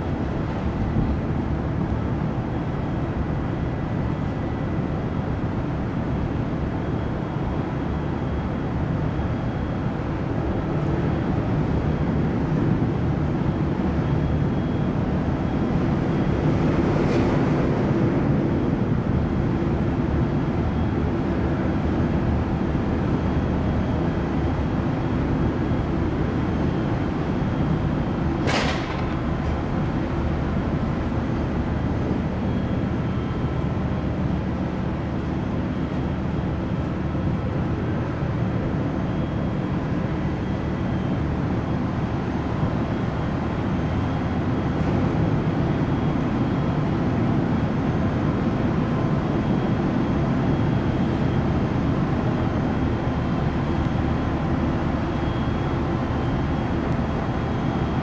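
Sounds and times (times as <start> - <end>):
ship engines rumbling: 0.0 - 58.0.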